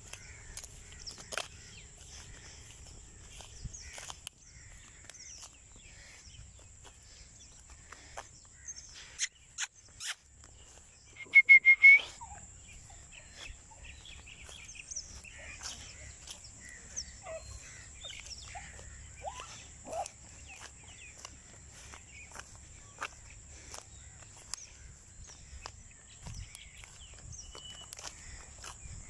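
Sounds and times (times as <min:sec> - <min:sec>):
birds chirping and calling: 0:00.0 - 0:29.0
loud bird call: 0:11.1 - 0:21.6.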